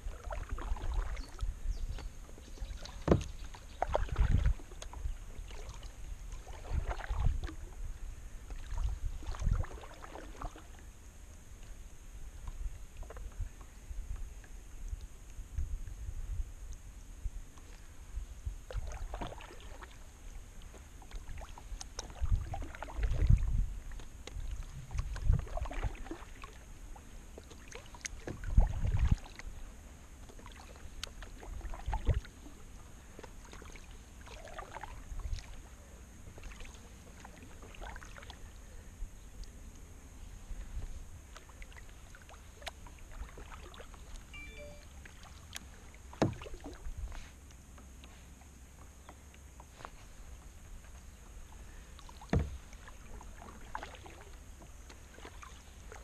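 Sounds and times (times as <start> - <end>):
paddle splashing in water: 0.0 - 10.9, 17.5 - 56.0
paddle knocking against boat: 2.9 - 4.3, 46.1 - 46.8, 52.2 - 52.6.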